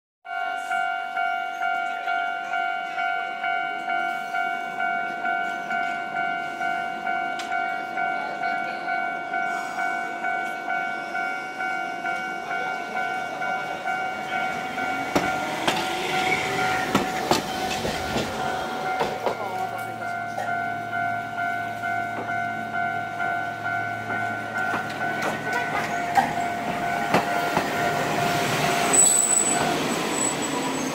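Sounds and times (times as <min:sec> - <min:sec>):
level crossing warning signal ringing: 0:00.3 - 0:30.9
tram wheels clacking over rail joints: 0:13.0 - 0:20.6, 0:21.4 - 0:30.9.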